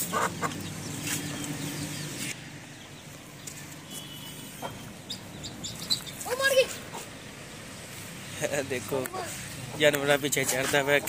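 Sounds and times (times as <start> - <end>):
hen clucking: 0.0 - 1.7, 4.6 - 7.2
high chirp: 3.9 - 6.4.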